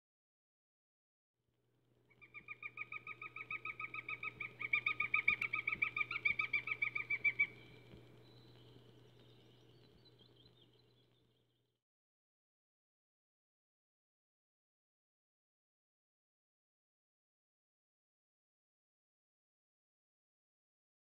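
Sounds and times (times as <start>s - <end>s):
low steady hum: 1.7s - 11.8s
bird calling rapid notes: 2.1s - 9.6s.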